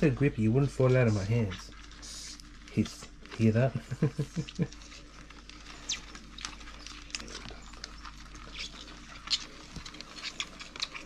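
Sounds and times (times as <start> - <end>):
cockroach hissing puffs: 2.0 - 2.4.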